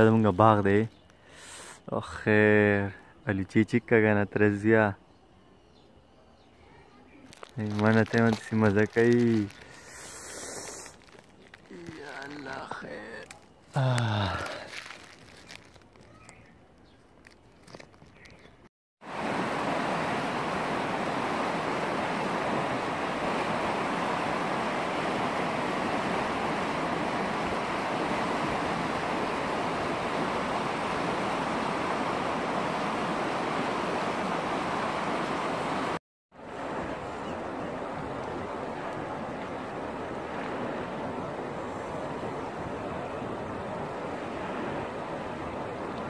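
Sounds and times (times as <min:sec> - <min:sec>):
faint handling sounds: 0:07.2 - 0:18.7
river water rushing: 0:19.0 - 0:46.0.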